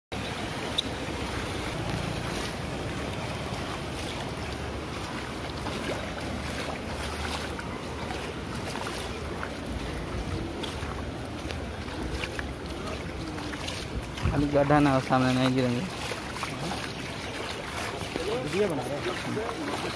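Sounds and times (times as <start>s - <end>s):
water sloshing and splashing: 0.2s - 19.9s
wind rumble on microphone: 0.3s - 15.0s.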